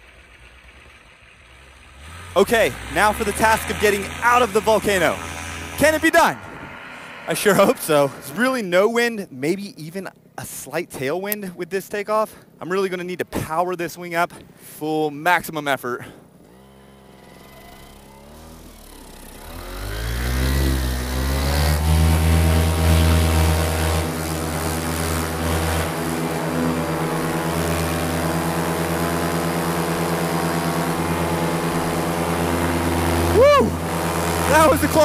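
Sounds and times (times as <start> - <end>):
paramotor engine and propeller: 0.0 - 8.7, 16.2 - 35.0.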